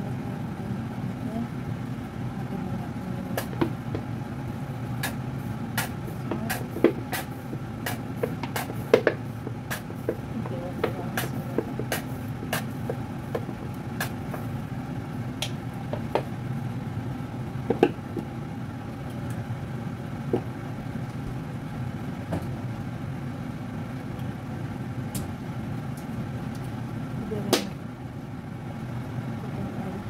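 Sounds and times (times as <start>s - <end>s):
kitchen appliance humming: 0.0s - 30.0s
utensils clicking and knocking: 5.8s - 14.5s.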